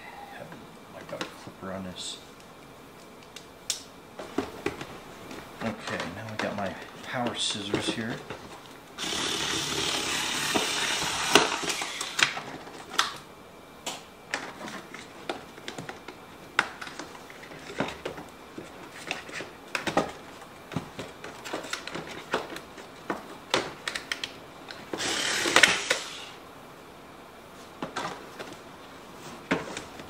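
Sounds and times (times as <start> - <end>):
electric scissors buzzing: 9.0 - 12.4, 25.0 - 26.4.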